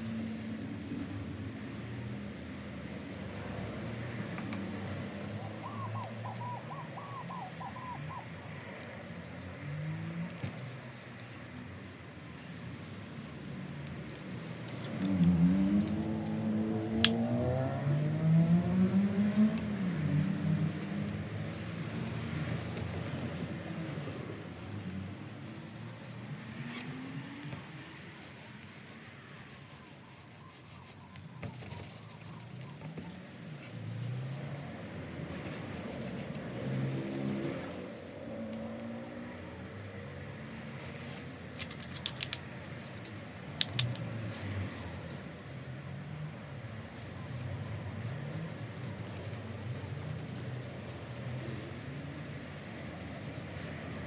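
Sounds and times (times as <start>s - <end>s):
sharp clicks: 16.9s - 17.3s, 41.6s - 44.1s.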